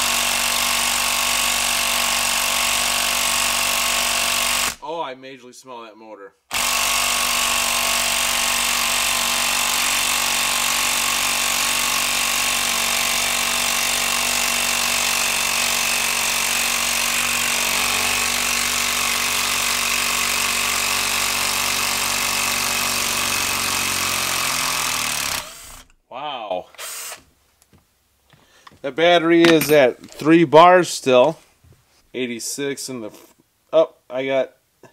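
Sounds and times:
impact driver hammering: 0:00.0 - 0:04.8, 0:06.5 - 0:26.0, 0:29.4 - 0:29.9.

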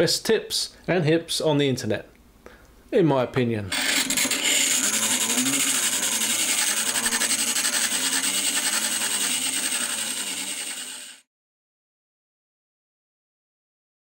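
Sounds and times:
bench grinder grinding: 0:03.7 - 0:11.3.

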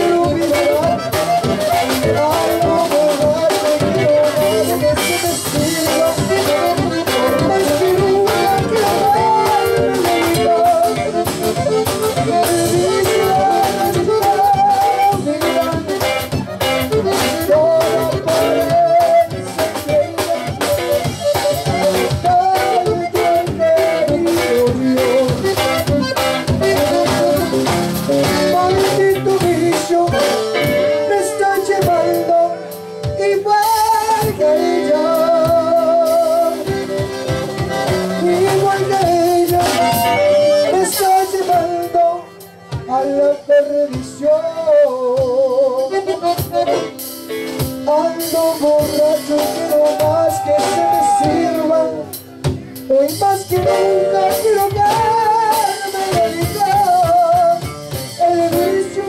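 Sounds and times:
button accordion melody: 0:00.0 - 0:59.0
live band playing: 0:00.0 - 0:59.0.

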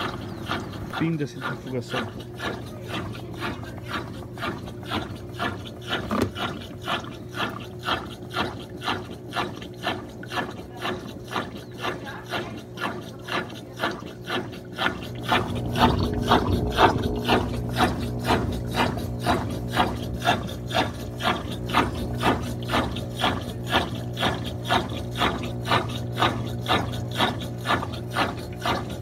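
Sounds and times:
washing machine motor hum: 0:00.0 - 0:29.0
washing machine swish and knock: 0:05.9 - 0:06.6, 0:15.2 - 0:29.0.

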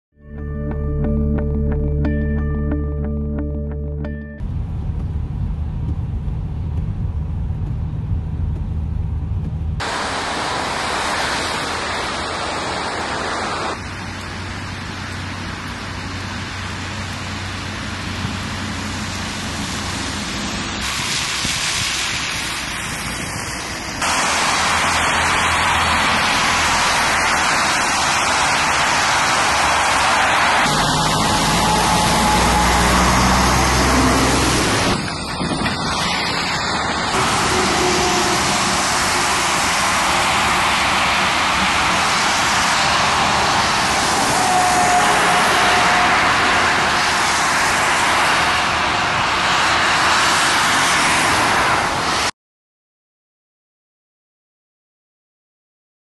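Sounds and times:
car engine and tyres rumbling: 0:00.3 - 0:52.3
vehicle engines: 0:04.0 - 0:52.3
tyres hissing on slushy road: 0:09.8 - 0:52.3.

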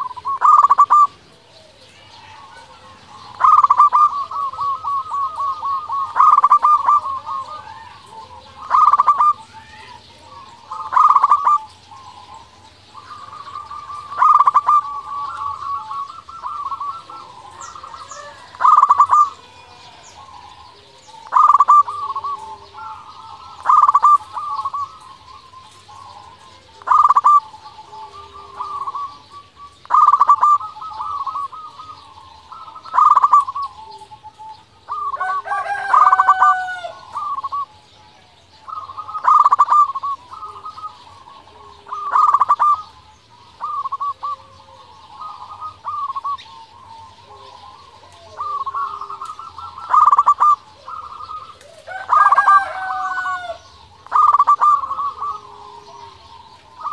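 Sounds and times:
dove cooing: 0:00.0 - 0:56.9.

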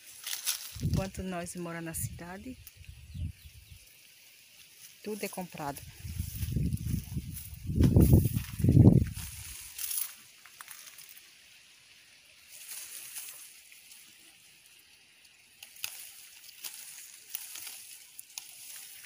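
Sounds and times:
leaves and twigs rustling: 0:00.0 - 0:19.0.

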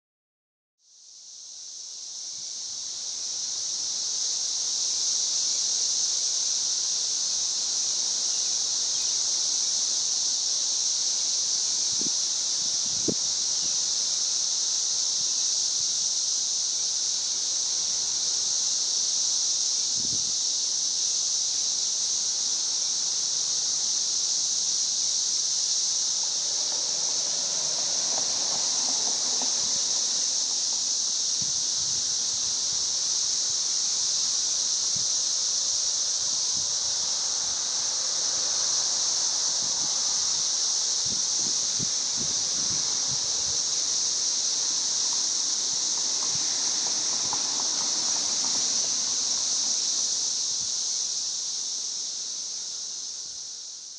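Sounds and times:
cicadas droning: 0:00.8 - 0:53.9.

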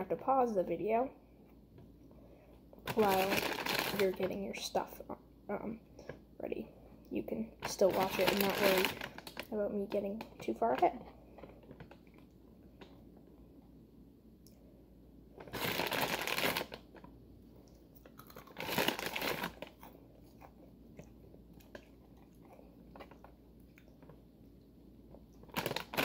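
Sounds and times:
plastic bag crinkling: 0:02.8 - 0:04.7, 0:07.6 - 0:10.8, 0:15.4 - 0:17.2, 0:18.0 - 0:20.0, 0:25.4 - 0:26.0.

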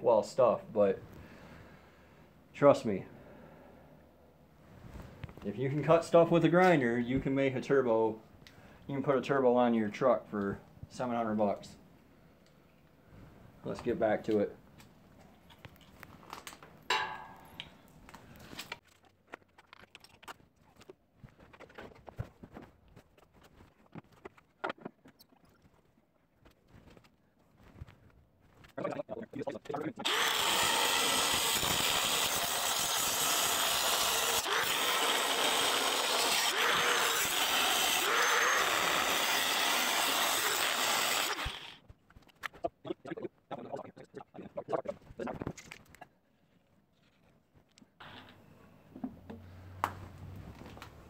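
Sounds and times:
angle grinder cutting metal: 0:30.0 - 0:41.8.

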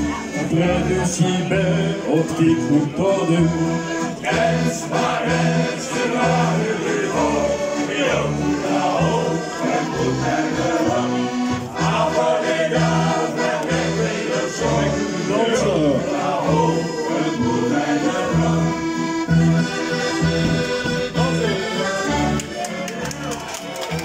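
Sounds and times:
accordions playing folk tune: 0:00.0 - 0:24.0.

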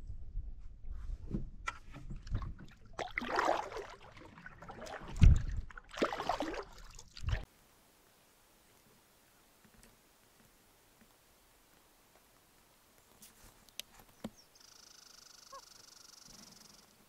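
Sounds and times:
paddle swishing water: 0:01.7 - 0:07.5.

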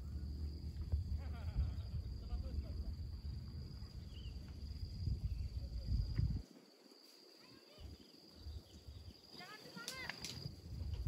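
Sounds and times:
low rumble: 0:00.0 - 0:06.4
faint chirps: 0:03.8 - 0:06.0.

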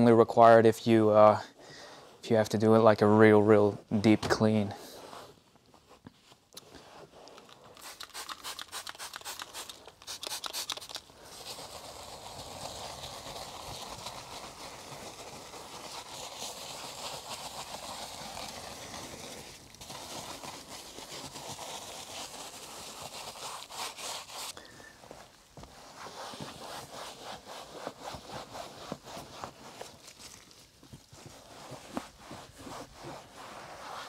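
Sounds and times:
brush scrubbing leather: 0:06.8 - 0:34.0.

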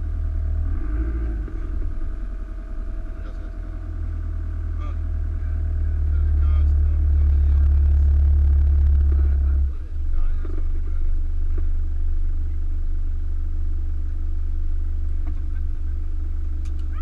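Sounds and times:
motorhome engine droning: 0:00.0 - 0:17.0.

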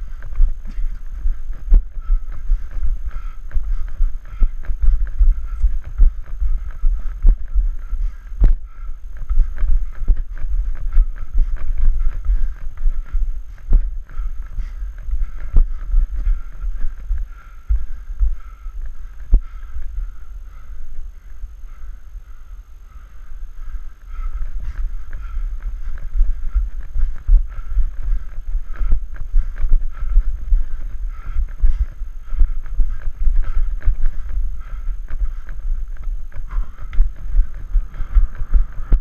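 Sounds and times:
footsteps on rocky trail: 0:00.0 - 0:20.6
wind buffeting microphone: 0:24.1 - 0:39.0.

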